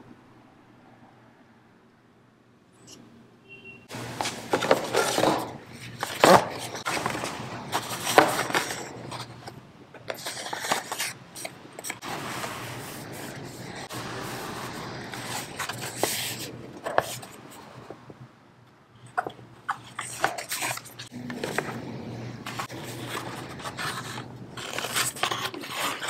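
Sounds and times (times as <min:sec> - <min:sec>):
ribbon spools rustling and scraping: 0:04.2 - 0:18.0, 0:19.1 - 0:26.0.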